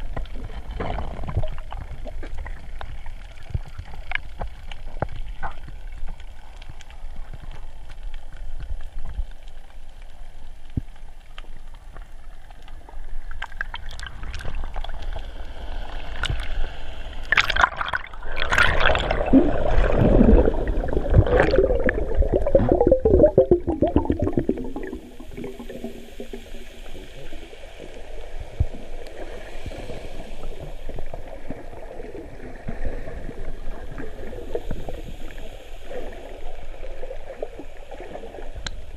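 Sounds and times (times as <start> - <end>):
bubbling and splashing: 0.0 - 7.4, 12.9 - 38.9
crackling clicks: 0.0 - 15.3, 38.6 - 38.9
underwater water gurgling: 0.0 - 38.9.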